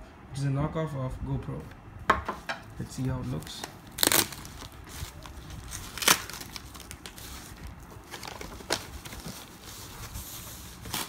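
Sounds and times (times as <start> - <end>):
foam wrap rustling and crinkling: 2.8 - 11.0
sharp crackles: 3.3 - 7.7.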